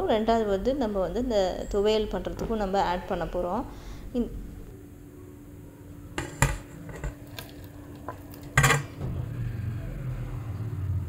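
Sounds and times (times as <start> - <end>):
kitchenware clinking on metal pot: 8.5 - 8.9.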